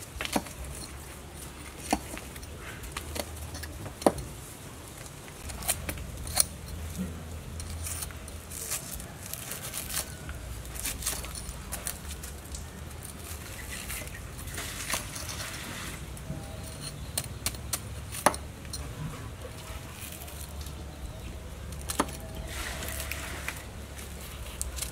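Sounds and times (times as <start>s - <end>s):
axe scraping charred skin: 5.3s - 24.9s.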